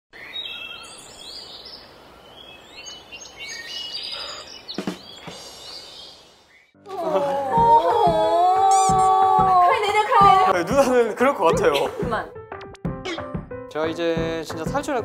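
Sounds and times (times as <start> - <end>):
small birds chirping: 0.1 - 6.8
steady outdoor hiss: 0.2 - 7.3.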